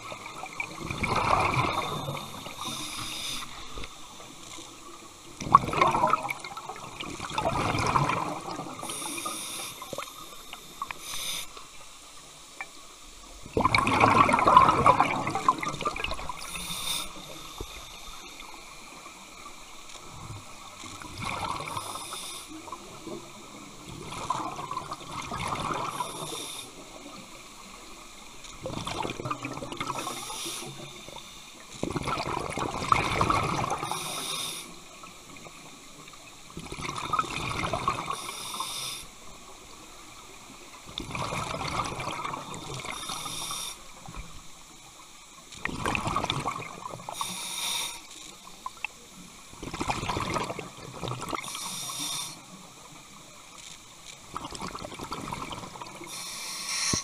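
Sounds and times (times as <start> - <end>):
underwater bubbling breaths: 0.7 - 4.2, 5.4 - 11.7, 13.5 - 19.3, 21.0 - 23.2, 24.0 - 27.3, 28.6 - 35.0, 36.7 - 39.2, 41.0 - 44.2, 45.7 - 48.2, 49.6 - 52.7, 54.4 - 57.0
regulator hiss: 1.7 - 4.3, 8.8 - 12.5, 16.3 - 19.7, 21.6 - 23.7, 25.9 - 28.0, 29.9 - 31.6, 33.8 - 35.0, 38.1 - 39.2, 42.8 - 44.3, 47.0 - 48.5, 51.4 - 52.6, 56.0 - 57.0.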